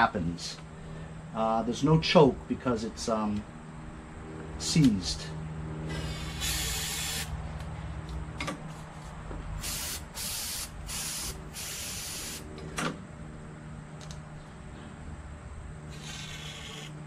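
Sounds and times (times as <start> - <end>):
aerosol can spraying hiss: 6.0 - 7.3, 9.6 - 12.4.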